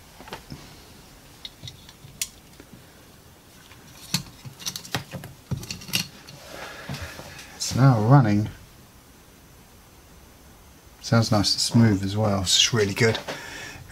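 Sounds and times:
metal parts and tools clinking: 3.9s - 6.4s.

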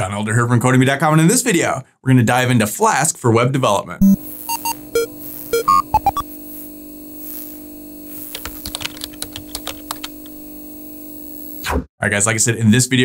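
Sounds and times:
short electronic beeps: 4.0s - 6.2s
electrical hum: 4.0s - 11.6s
keyboard typing clicks: 8.3s - 10.3s.

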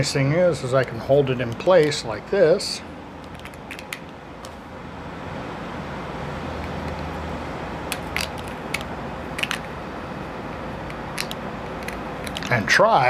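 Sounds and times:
low mechanical rumble: 0.0s - 13.0s
pipe fittings clicking: 3.2s - 4.6s, 7.9s - 9.7s, 10.8s - 12.6s.

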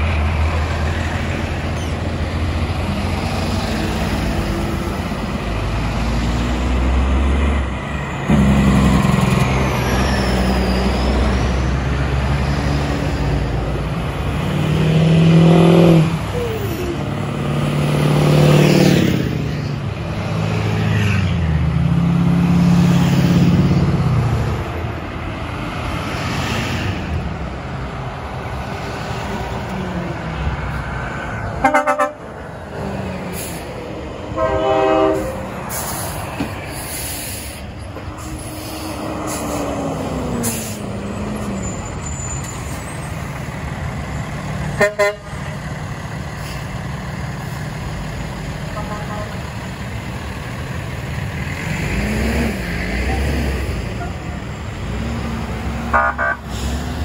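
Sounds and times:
trucks driving past: 0.0s - 57.0s
horn blasts: 31.6s - 32.2s, 34.3s - 35.4s, 44.8s - 45.3s, 48.8s - 49.4s, 55.9s - 56.5s.

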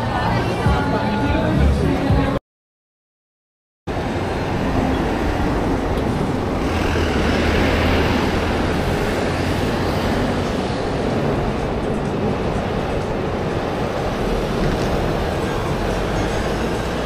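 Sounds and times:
street traffic noise: 0.0s - 2.4s, 3.9s - 17.0s
small truck passing: 4.0s - 11.7s.

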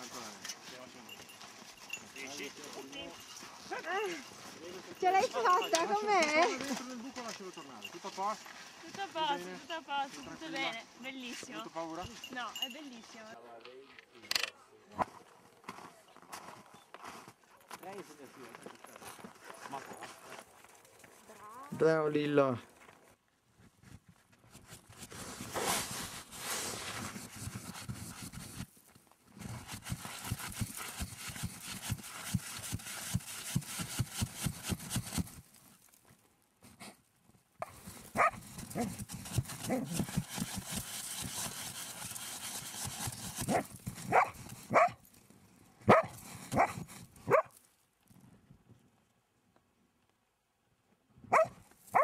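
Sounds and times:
dog scraping snow: 24.7s - 28.7s, 29.4s - 35.6s, 37.7s - 45.0s, 45.9s - 47.5s
dog barking and whining: 38.2s - 39.0s, 43.5s - 45.0s, 45.9s - 47.5s, 51.3s - 52.0s.

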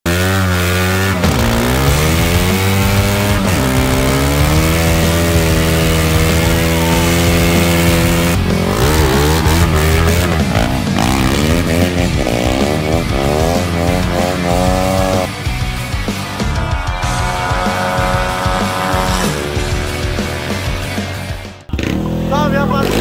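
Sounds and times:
motorcycle engine revving: 0.1s - 23.0s.

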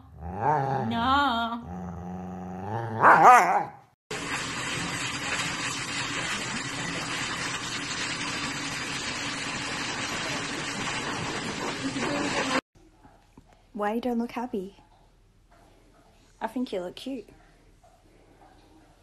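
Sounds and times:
dog grooming dryer rushing: 4.1s - 12.6s.

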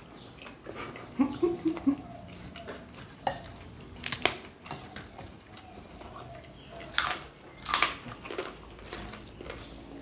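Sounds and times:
crisp fried food crunching: 3.2s - 10.0s.

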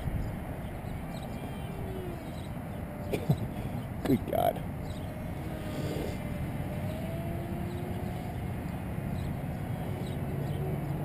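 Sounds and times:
electric model jet motor whine: 4.9s - 8.8s.

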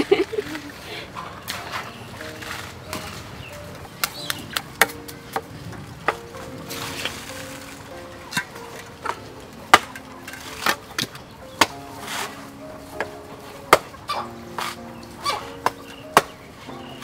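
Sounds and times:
soft background music: 0.0s - 17.0s.

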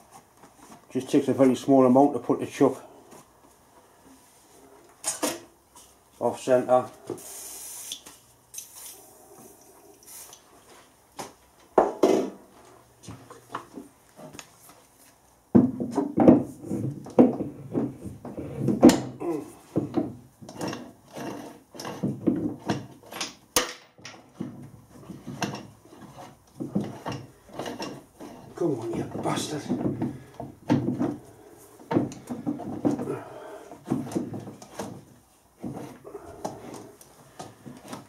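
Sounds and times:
metal clunks and knocks: 11.8s - 12.5s, 15.5s - 38.0s.

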